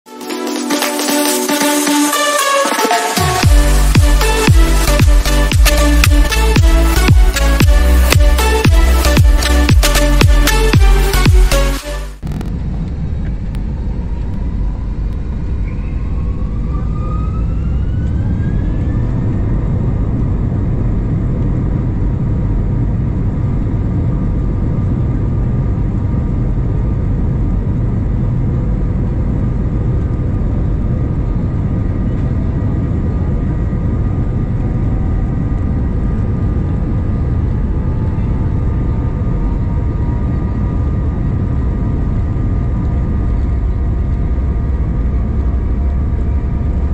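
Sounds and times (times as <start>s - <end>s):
jet engine rumble and whine: 12.2s - 46.9s.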